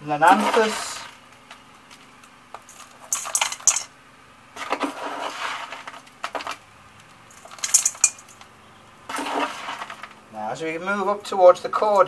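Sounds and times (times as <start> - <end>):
spoon scraping gritty compost: 0.0 - 1.2, 4.6 - 6.6, 9.1 - 10.2
gritty compost pouring: 0.0 - 1.6, 2.6 - 3.9, 4.6 - 6.6, 9.1 - 10.8.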